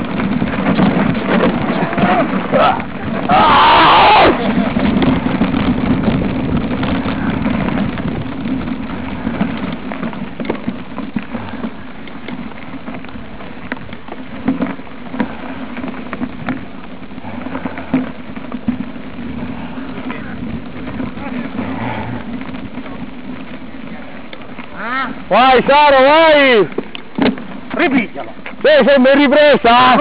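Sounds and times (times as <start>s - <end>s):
bike tyres crunching on dirt: 0.0s - 30.0s
small clicks and knocks: 26.7s - 29.3s.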